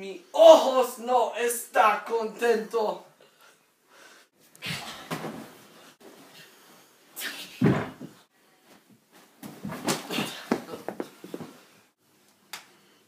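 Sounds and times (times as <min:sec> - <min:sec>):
loud thump: 0:07.6 - 0:08.1
rustling and handling noise: 0:08.0 - 0:12.4.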